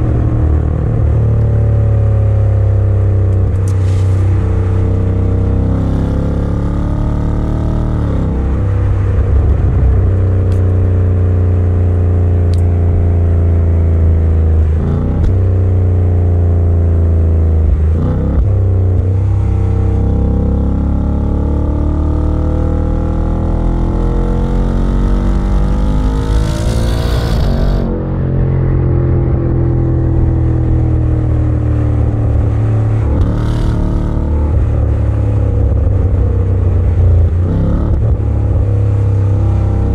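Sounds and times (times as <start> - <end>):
car engine revving: 17.6 - 28.0, 31.8 - 39.9.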